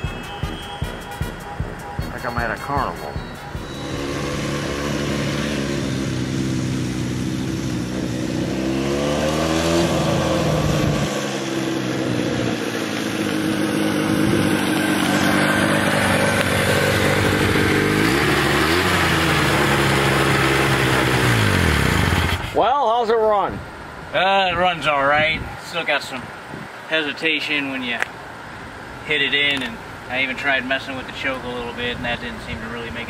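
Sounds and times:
motorcycle engine accelerating: 1.2s - 22.6s.

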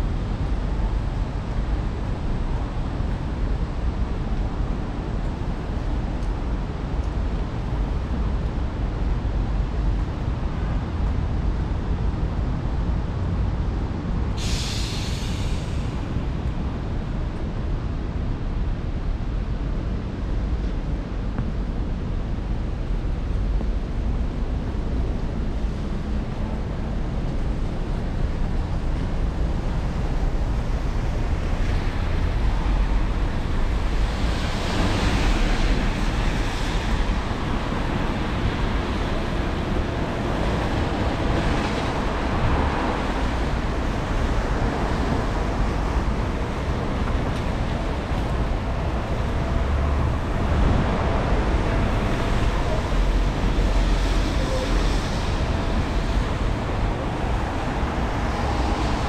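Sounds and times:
low traffic rumble: 0.0s - 59.0s
tyres hissing on wet road: 14.2s - 17.0s, 27.6s - 59.0s.

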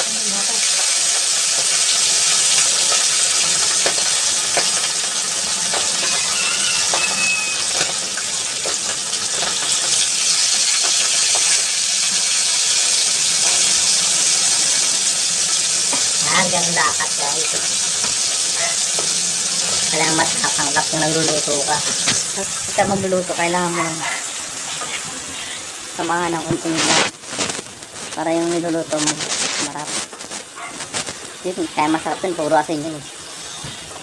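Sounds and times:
fish sizzling in hot oil: 0.0s - 34.0s
oil popping and spattering: 1.2s - 22.8s, 26.3s - 31.6s.

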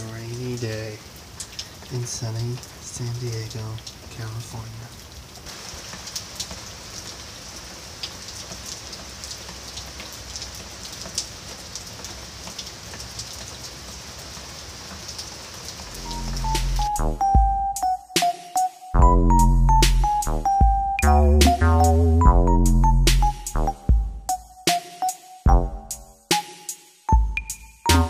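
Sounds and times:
steady rain falling: 0.0s - 18.4s
electronic music with bass line: 16.0s - 26.5s, 27.1s - 28.0s.

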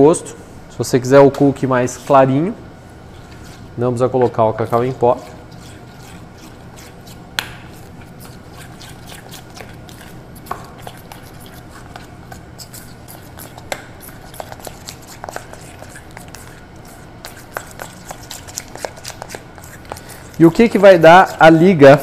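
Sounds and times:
spoon scraping metal bowl: 4.6s - 10.2s.

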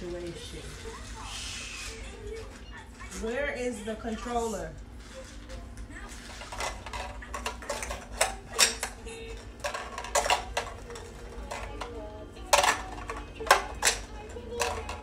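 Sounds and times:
plastic toys clicking and knocking: 6.1s - 15.0s.

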